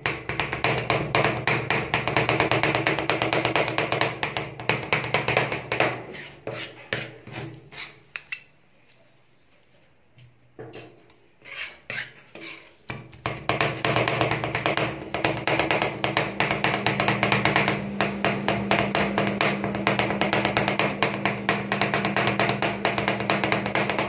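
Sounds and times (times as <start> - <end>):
metal spatulas chopping on metal plate: 0.0 - 8.3.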